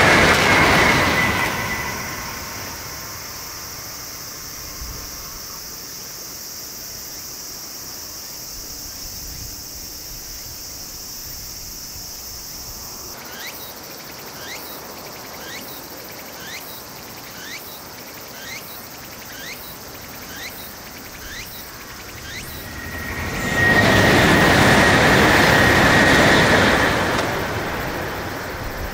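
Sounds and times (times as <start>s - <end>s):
high-pitched insect drone: 0.0s - 28.9s
pulsing insect chirps: 0.1s - 28.9s.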